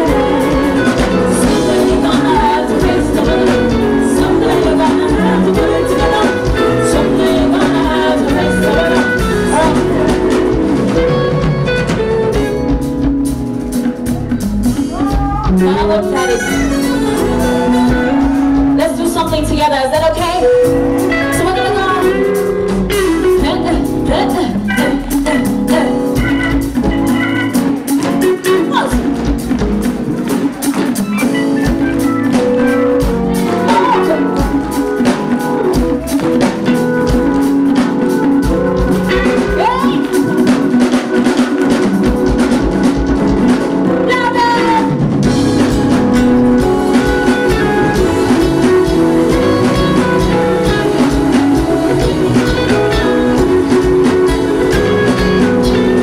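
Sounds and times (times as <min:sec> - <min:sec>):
woman singing: 0:00.0 - 0:11.2, 0:15.4 - 0:20.6, 0:21.2 - 0:26.6, 0:39.1 - 0:42.4, 0:46.8 - 0:56.0
drum kit: 0:00.0 - 0:56.0
electric bass: 0:00.0 - 0:56.0
electric guitar: 0:00.0 - 0:56.0
keyboard: 0:00.0 - 0:56.0.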